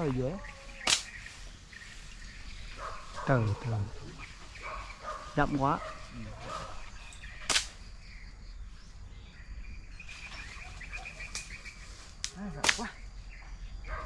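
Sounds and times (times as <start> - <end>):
sharp snaps: 0.8 - 1.3, 7.4 - 7.8, 11.2 - 11.6, 12.2 - 13.1.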